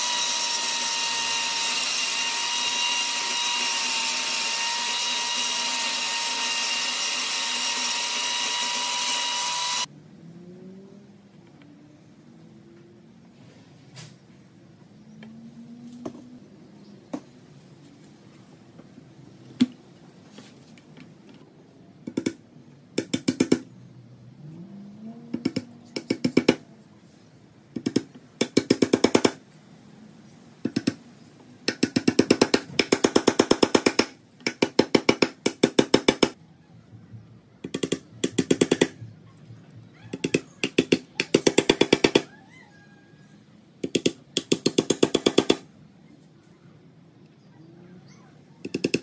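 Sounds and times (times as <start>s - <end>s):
hammer driving nails into wood: 23.0s - 23.7s, 25.4s - 26.6s, 27.8s - 29.4s, 30.6s - 31.0s, 31.7s - 36.3s, 37.6s - 39.0s, 40.2s - 42.3s, 43.8s - 45.7s, 48.7s - 49.0s.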